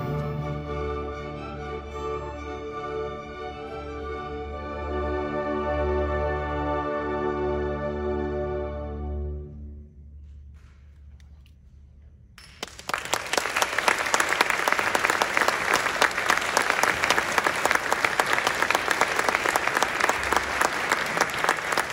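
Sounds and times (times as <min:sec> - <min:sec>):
audience applauding: 0:12.4 - 0:21.9.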